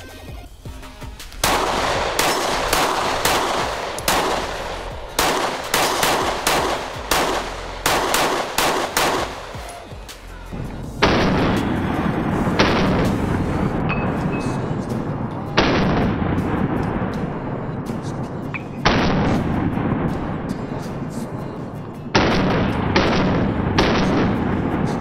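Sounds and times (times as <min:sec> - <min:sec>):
pistol shots: 0:01.4 - 0:09.9, 0:11.0 - 0:14.8, 0:15.6 - 0:17.4, 0:18.6 - 0:21.0, 0:22.2 - 0:25.0.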